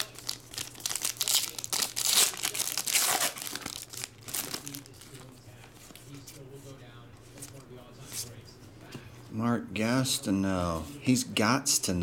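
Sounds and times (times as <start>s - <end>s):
foil wrapper tearing and crinkling: 0.0s - 5.3s.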